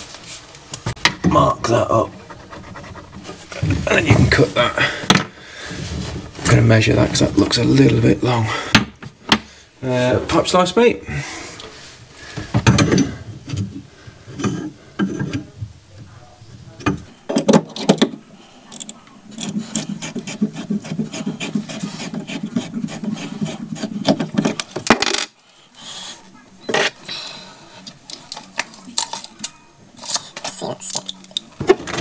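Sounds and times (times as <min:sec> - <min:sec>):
pipe cutter rasping and clicking: 0:18.7 - 0:24.7.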